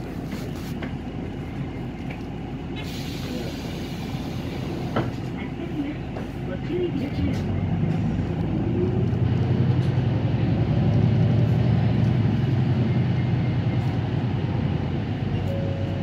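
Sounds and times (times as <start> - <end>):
bus engine drone: 0.0 - 16.0
tyre and road noise: 0.0 - 16.0.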